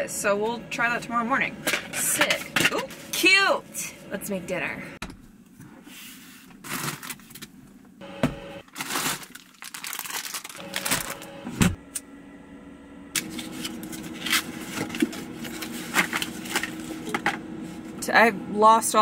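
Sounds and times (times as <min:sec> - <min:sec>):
steady hum: 0:07.7 - 0:09.3, 0:10.4 - 0:19.0.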